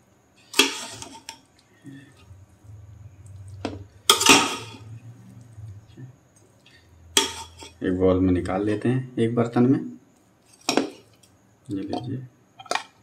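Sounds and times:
metal ladle scraping a metal pot: 0.5s - 1.4s, 3.6s - 5.0s, 7.1s - 7.8s.

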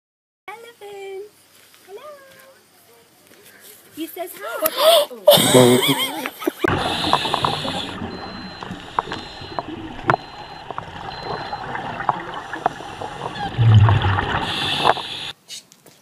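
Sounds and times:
scuba exhaust bubbles: 6.7s - 15.4s
underwater hiss: 6.7s - 15.4s
regulator hiss on inhale: 6.8s - 8.0s, 14.4s - 15.4s.

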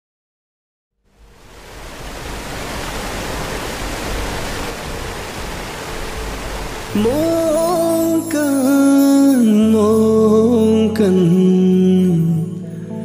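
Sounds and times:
waterfall roaring: 1.1s - 8.9s.

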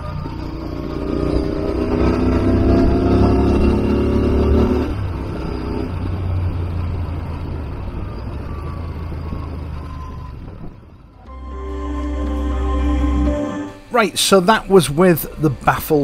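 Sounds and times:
motorcycle engine at road speed: 0.0s - 11.3s
road and wind noise: 0.0s - 16.0s.

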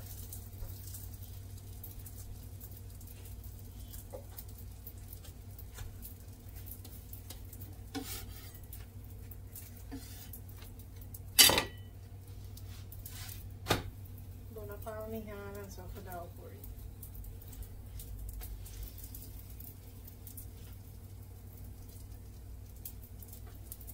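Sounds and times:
utensils knocking and clinking: 11.4s - 11.9s.

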